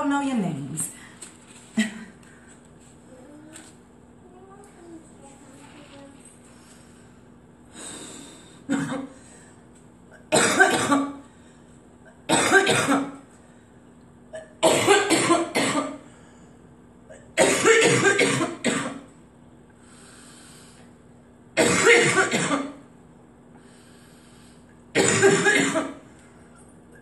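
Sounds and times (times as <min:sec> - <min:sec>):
woman coughing: 0:08.7 - 0:09.2, 0:10.2 - 0:11.2, 0:12.1 - 0:13.2, 0:14.3 - 0:16.0, 0:17.1 - 0:19.1, 0:21.6 - 0:22.8, 0:25.0 - 0:26.0.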